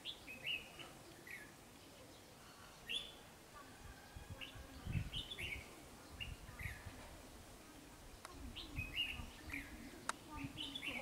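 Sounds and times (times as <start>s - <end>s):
bulbuls chirping: 0.0s - 11.0s.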